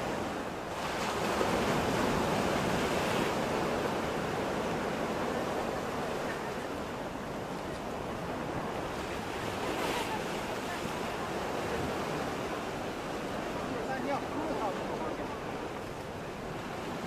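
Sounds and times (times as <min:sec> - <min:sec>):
waves breaking on shore: 0:00.0 - 0:17.0.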